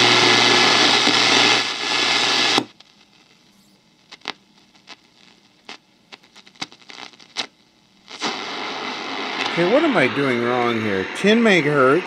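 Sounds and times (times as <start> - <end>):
radio dial clicks and crackles: 0.0 - 11.4.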